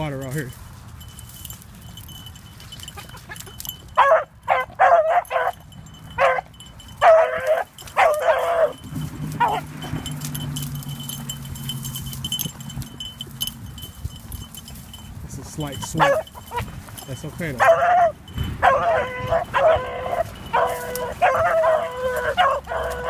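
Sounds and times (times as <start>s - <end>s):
dog baying: 2.8s - 11.4s, 16.0s - 16.8s, 17.5s - 23.0s.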